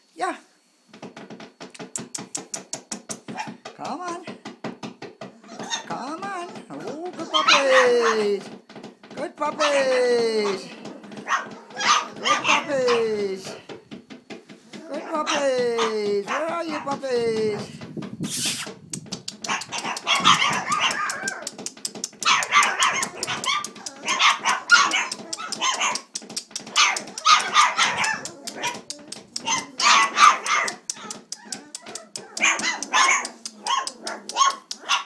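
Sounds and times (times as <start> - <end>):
small sharp clicks: 1.7 - 3.3, 18.4 - 35.0
puppies yipping and barking: 1.8 - 3.7, 5.3 - 8.9, 9.5 - 13.8, 18.4 - 35.0.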